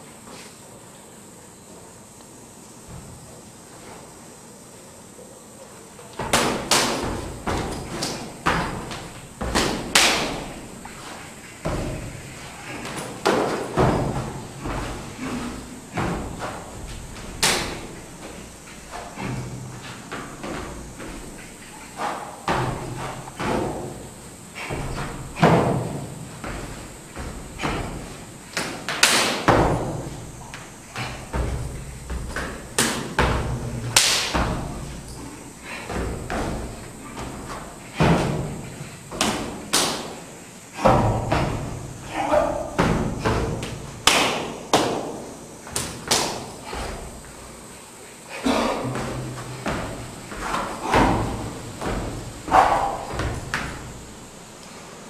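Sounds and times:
foot stamps on wooden floor: 6.2 - 28.8, 48.5 - 54.4.

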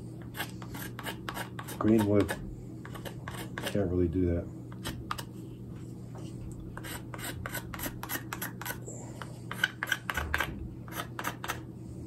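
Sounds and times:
blade scraping wooden spoon: 0.0 - 4.0, 6.1 - 11.7.

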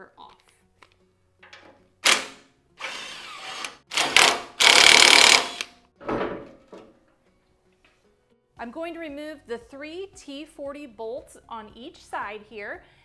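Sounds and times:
cordless power tool running: 2.8 - 5.7.

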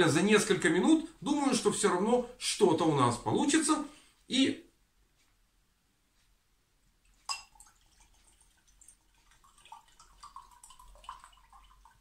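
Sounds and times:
liquid trickling and gurgling: 7.1 - 12.0.

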